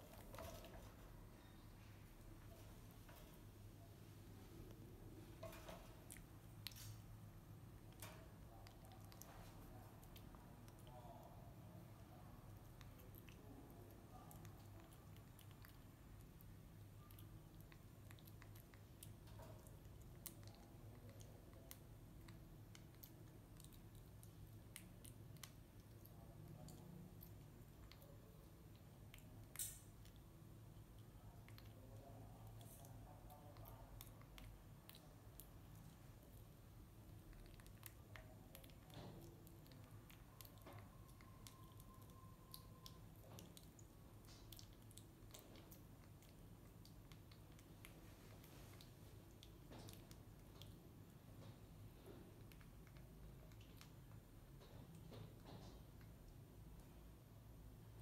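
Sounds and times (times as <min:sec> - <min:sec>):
low steady hum: 0:00.0 - 0:58.0
monkey chewing wet clicks: 0:12.6 - 0:50.8, 0:52.3 - 0:54.3.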